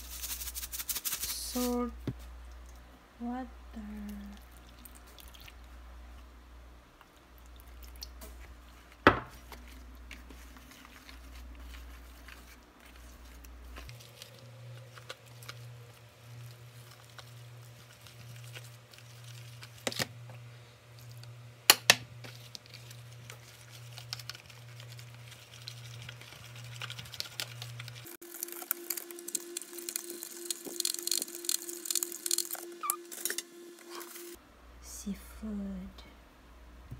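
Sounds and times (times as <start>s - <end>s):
steady low hum: 0.0s - 36.9s
whisk mixing batter: 8.4s - 19.8s, 22.3s - 28.6s.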